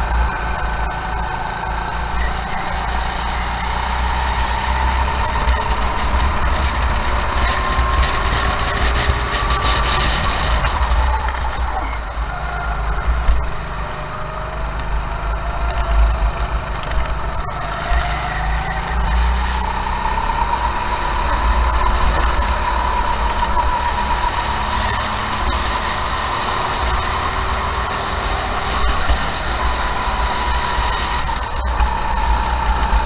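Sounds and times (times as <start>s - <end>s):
kart engine revving: 0.0s - 33.0s
wind rumble on microphone: 4.5s - 14.0s.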